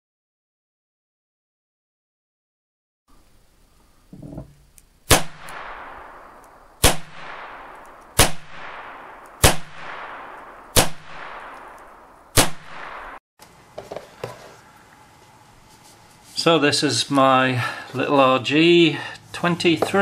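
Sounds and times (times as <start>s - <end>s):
revolver shots with echo: 5.1s - 13.2s.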